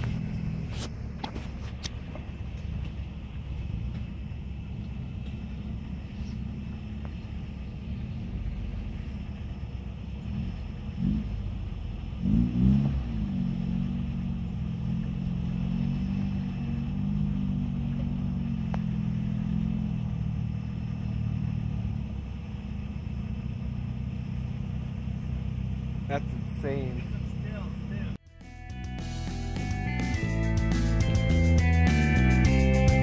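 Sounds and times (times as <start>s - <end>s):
truck engine running at low revs: 0.0s - 33.0s.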